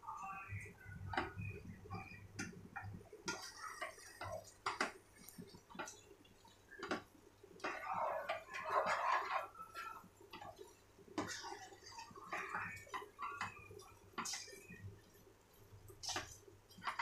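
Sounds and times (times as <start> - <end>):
spatula scraping pot: 7.6 - 14.8.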